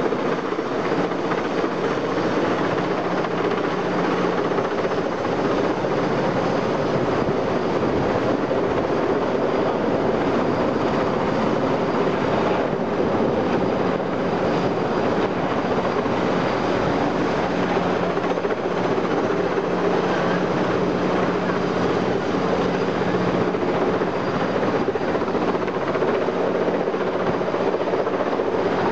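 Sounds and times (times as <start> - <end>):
helicopter rotors and engine: 0.0 - 28.9.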